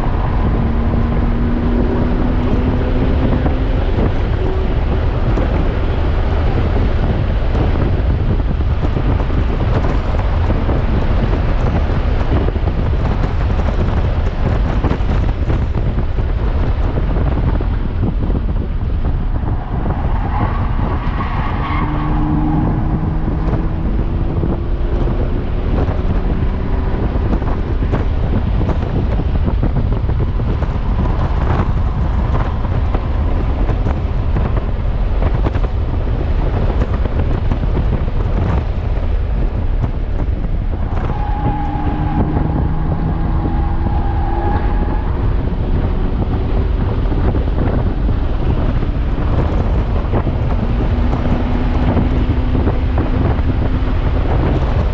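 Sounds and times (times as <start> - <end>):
car engine accelerating: 0.0 - 54.9
road and wind rumble: 0.0 - 54.9.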